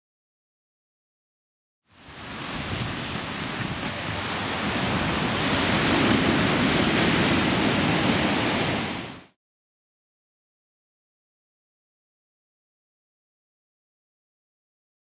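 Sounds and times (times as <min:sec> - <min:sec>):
sea surf breaking on shingle: 0:02.0 - 0:09.1
wind rushing over microphone: 0:02.0 - 0:09.4.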